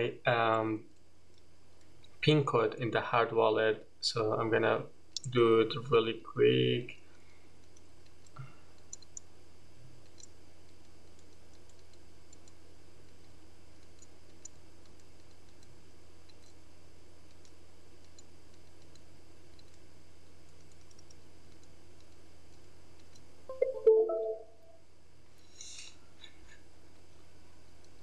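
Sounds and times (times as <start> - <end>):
low room hum: 0.0 - 28.0.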